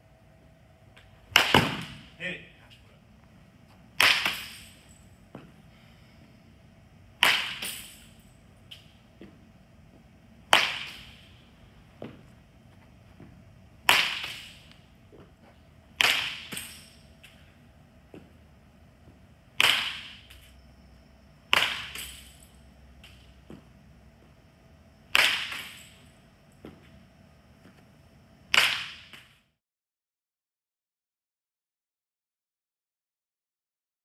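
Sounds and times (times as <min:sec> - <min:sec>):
baseball bat cracking ball: 0:01.0 - 0:02.2, 0:03.9 - 0:04.8, 0:07.2 - 0:08.9, 0:10.4 - 0:11.4, 0:13.2 - 0:17.4, 0:19.1 - 0:20.5, 0:21.4 - 0:23.7, 0:25.1 - 0:26.0, 0:28.5 - 0:29.3.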